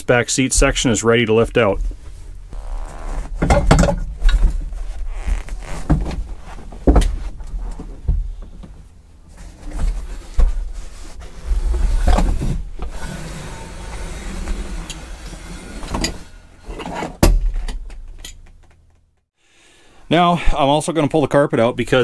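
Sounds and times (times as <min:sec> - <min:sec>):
seat scraping and rustling: 0:02.0 - 0:13.2.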